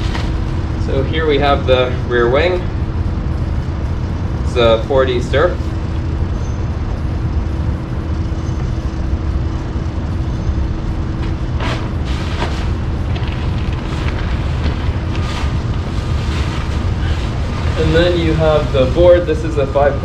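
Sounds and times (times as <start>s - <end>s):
faint hum: 0.0s - 20.0s
low rumble: 0.0s - 20.0s
plastic wrapping crinkling: 11.8s - 19.0s.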